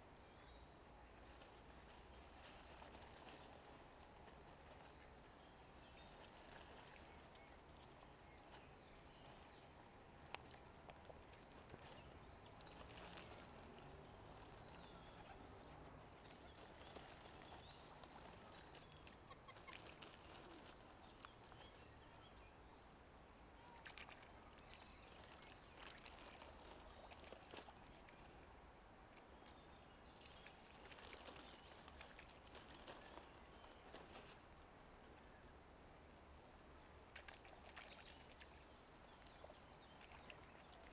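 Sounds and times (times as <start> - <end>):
bills clicking and splashing in water: 23.8 - 28.3.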